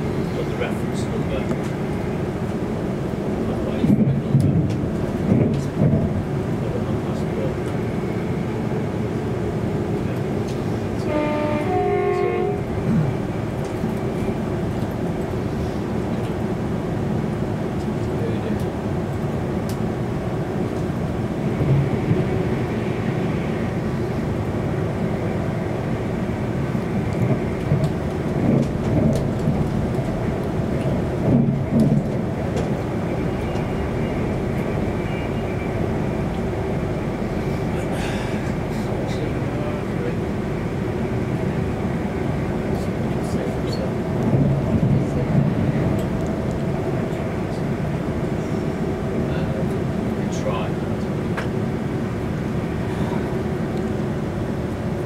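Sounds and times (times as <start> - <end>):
train wheels rumbling on track: 0.0 - 55.0
two-tone train horn: 11.0 - 12.8.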